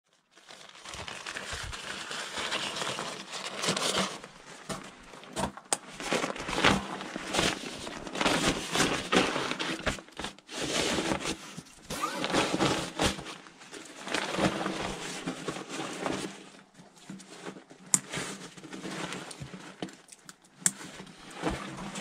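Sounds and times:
nylon backpack rustling: 0.5 - 16.5.

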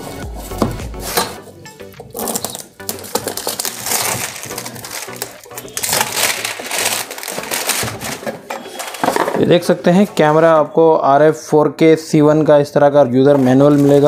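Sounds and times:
cardboard and packaging rustling: 2.0 - 10.6, 13.2 - 14.0.

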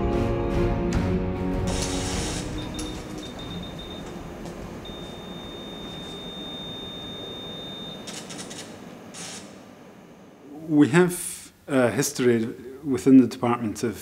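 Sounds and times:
high-pitched electronic tone: 4.8 - 8.2.

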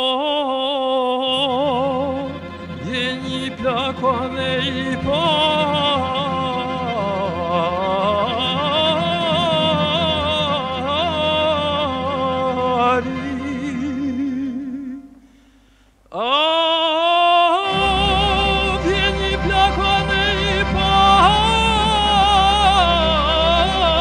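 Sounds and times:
sliding long held tone: 17.6 - 24.0
steady low bass: 17.7 - 24.0.

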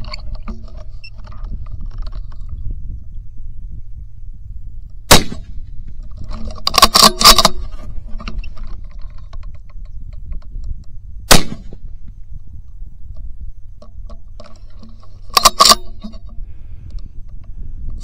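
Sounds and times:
gunshot: 5.1 - 5.5, 11.3 - 11.8.

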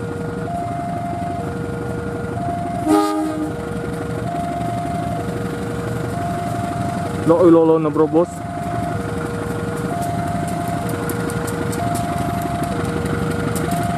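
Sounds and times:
freight train rumble: 0.0 - 13.9
two-tone crossing alarm: 0.4 - 1.6, 2.3 - 3.6, 4.2 - 5.4, 6.1 - 11.1, 11.7 - 13.9
train horn blast: 2.8 - 3.6.

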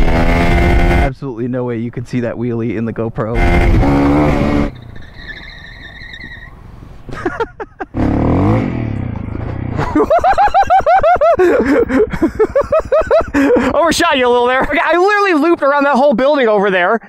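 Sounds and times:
dirt bike engine running: 0.0 - 1.1, 7.9 - 14.8.

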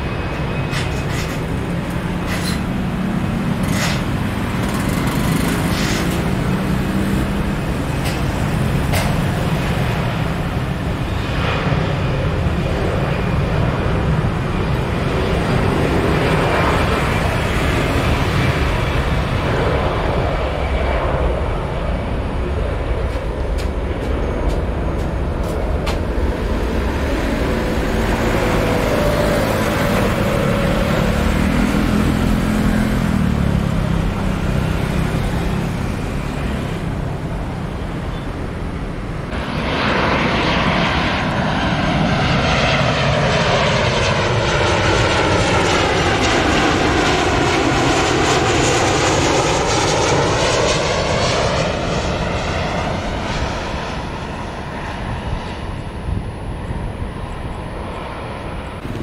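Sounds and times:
jet engines rumbling: 0.0 - 59.0.

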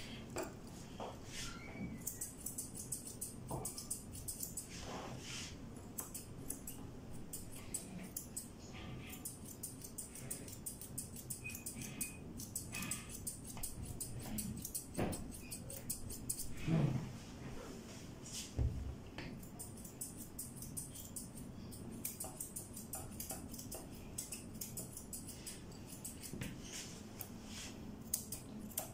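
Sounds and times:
scissors snipping fur: 2.0 - 4.7, 5.8 - 16.6, 19.2 - 26.6, 28.0 - 28.9.

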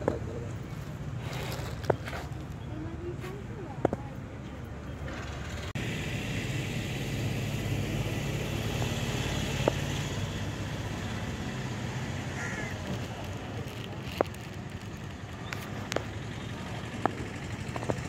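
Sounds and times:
vehicle engine idling: 0.0 - 18.0
outdoor traffic hiss: 5.8 - 17.7.

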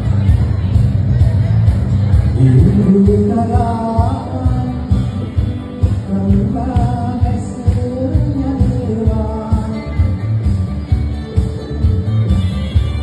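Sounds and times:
live band playing: 0.0 - 13.0
man singing into microphone: 2.4 - 10.3.

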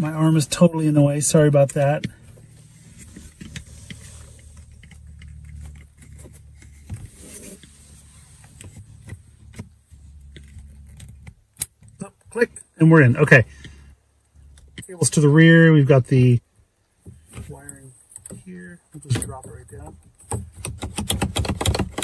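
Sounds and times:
hands rustling and scraping plastic trim: 1.3 - 12.1, 17.1 - 22.0.

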